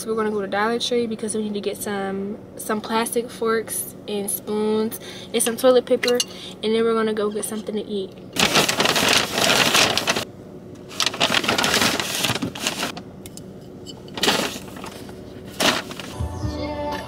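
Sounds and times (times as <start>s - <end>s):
paper bag rustling: 8.4s - 13.0s, 14.1s - 16.2s.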